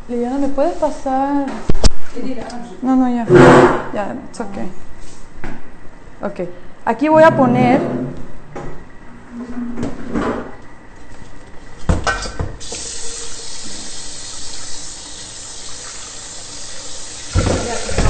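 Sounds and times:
faucet water running into metal bowl: 0:12.6 - 0:18.0.

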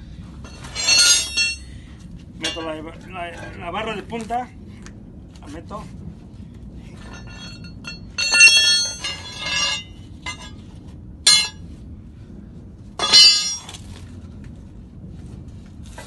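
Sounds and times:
tyre bars clanking on metal rim: 0:00.5 - 0:01.7, 0:07.0 - 0:10.5, 0:11.3 - 0:11.6, 0:13.0 - 0:13.8.

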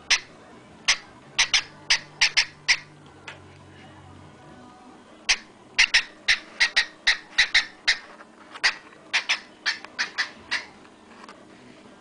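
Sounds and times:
cockatiel chirping: 0:00.1 - 0:00.3, 0:00.9 - 0:02.9, 0:05.3 - 0:10.8.

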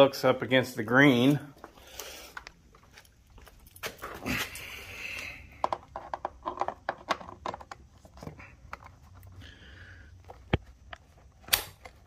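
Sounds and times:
plastic parts clicking: 0:05.5 - 0:09.4.

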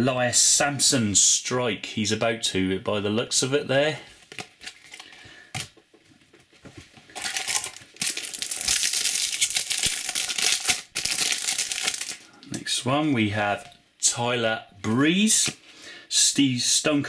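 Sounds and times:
foil wrapper tearing and crinkling: 0:07.1 - 0:12.3.

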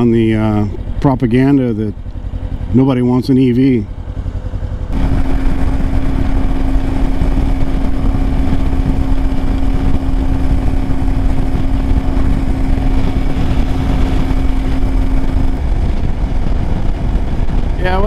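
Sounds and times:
motorcycle engine cruising: 0:00.0 - 0:18.0
wind rumble on microphone: 0:04.8 - 0:18.0.

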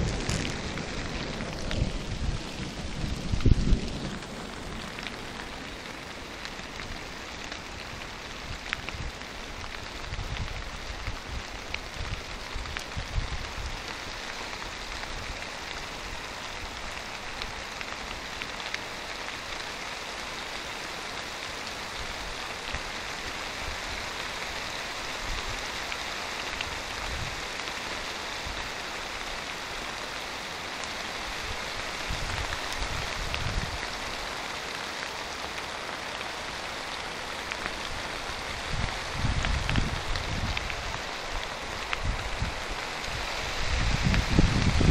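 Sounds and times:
low thunder rumbles: 0:00.0 - 0:07.1, 0:43.6 - 0:44.9
steady rain hissing: 0:00.0 - 0:44.9.

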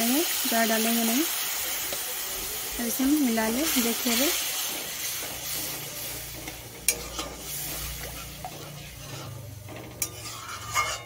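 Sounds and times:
light sizzle from hot pan: 0:00.0 - 0:11.0
metal spatula scraping pan: 0:03.2 - 0:11.0
spatula clinking against pan: 0:06.4 - 0:11.0.

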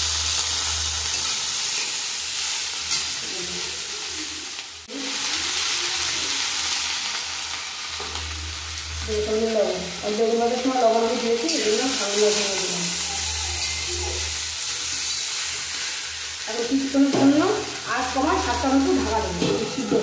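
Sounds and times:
leaves sizzling in hot oil: 0:00.0 - 0:20.0
metal spatula stirring: 0:13.0 - 0:15.8.

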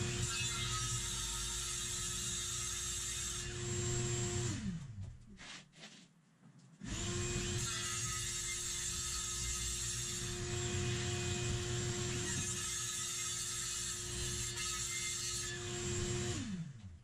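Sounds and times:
circular saw cutting plastic: 0:06.9 - 0:16.6.

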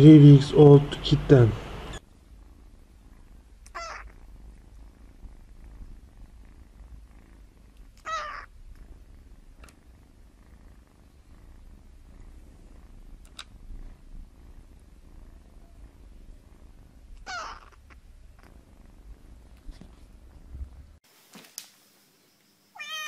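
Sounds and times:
faint purr: 0:01.3 - 0:21.0
kitten mewing: 0:03.6 - 0:04.3, 0:07.8 - 0:08.5, 0:17.1 - 0:18.5.

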